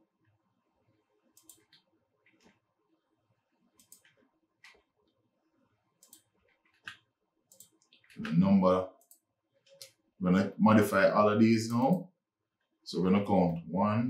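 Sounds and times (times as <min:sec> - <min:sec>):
computer mouse clicks: 0:01.3 - 0:02.6, 0:03.7 - 0:05.2, 0:06.0 - 0:08.3, 0:09.0 - 0:10.0
keyboard clicks: 0:01.4 - 0:02.6, 0:03.8 - 0:04.9, 0:06.0 - 0:08.4.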